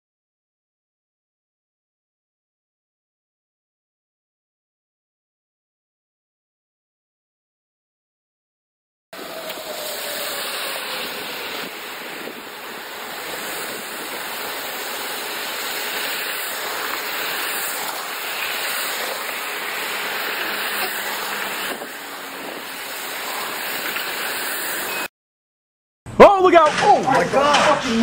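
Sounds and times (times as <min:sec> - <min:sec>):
storm wind and rain: 0:09.2 - 0:25.1.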